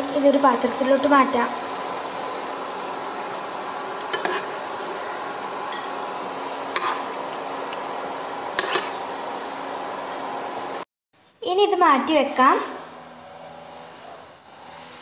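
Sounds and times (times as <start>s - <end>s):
nuts sizzling in hot ghee: 0.0s - 10.8s.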